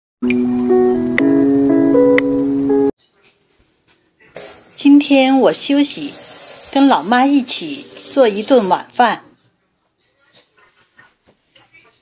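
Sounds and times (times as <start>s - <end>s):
intro music with melodic notes: 0.2s - 3.0s.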